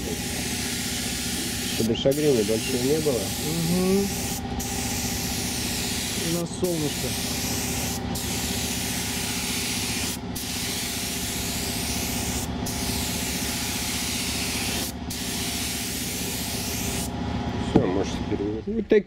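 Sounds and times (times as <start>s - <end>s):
paint spray gun hissing: 0.0s - 17.1s
steady hum: 0.0s - 19.0s.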